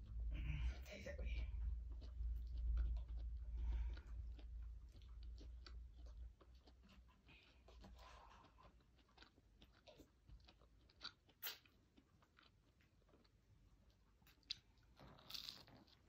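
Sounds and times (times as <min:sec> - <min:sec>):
low hum: 0:00.0 - 0:08.2
person eating crunching: 0:01.9 - 0:16.0.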